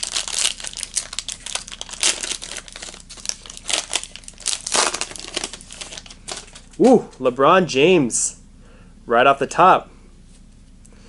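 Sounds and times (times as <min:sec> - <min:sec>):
plastic wrapper crinkling: 0:00.0 - 0:07.2.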